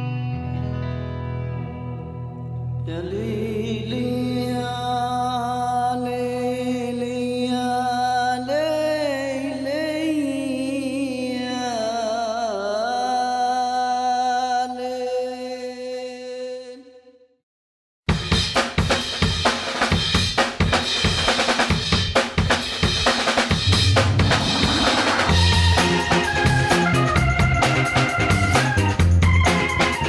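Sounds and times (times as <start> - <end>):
chant-like sung voice: 2.9 - 17.2
low drone: 23.6 - 26.6.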